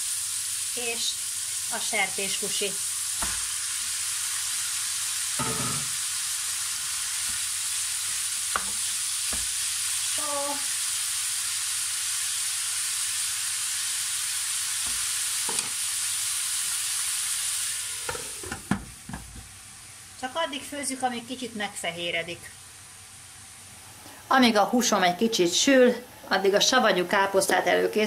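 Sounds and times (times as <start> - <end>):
meat sizzling in a frying pan: 0.0 - 24.5
wooden spoon knocking on pan: 3.2 - 3.5, 5.4 - 6.0, 8.5 - 9.6, 14.8 - 15.7.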